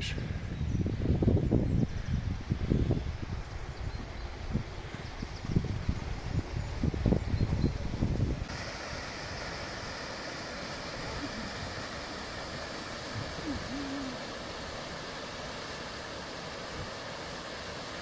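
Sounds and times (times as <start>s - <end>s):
stream water rushing: 7.8s - 18.0s.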